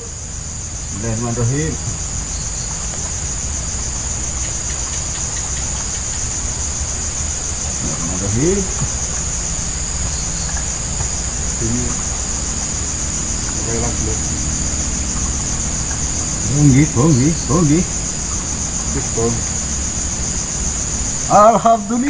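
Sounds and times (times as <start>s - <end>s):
pulsing insect chorus: 0.0s - 22.0s.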